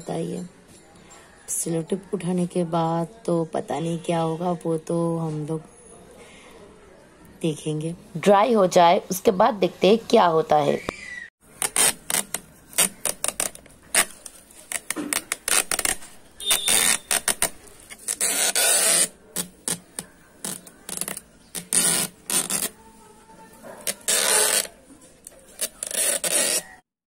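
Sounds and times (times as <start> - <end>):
tape peeling off plastic: 11.5 - 22.8, 23.8 - 26.8
plastic pot scraping: 11.6 - 22.8, 23.6 - 24.8, 25.5 - 26.8.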